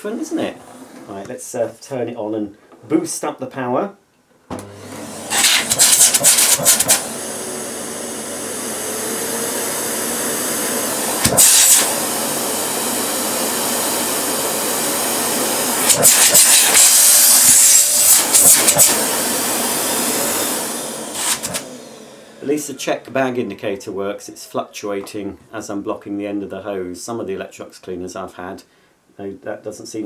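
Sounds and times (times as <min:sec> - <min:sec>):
vacuum cleaner running: 0:04.5 - 0:23.0.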